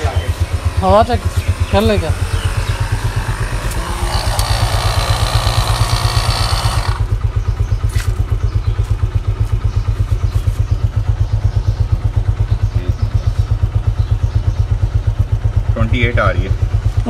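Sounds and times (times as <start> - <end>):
electric tyre inflator pulsing: 0.0 - 8.1.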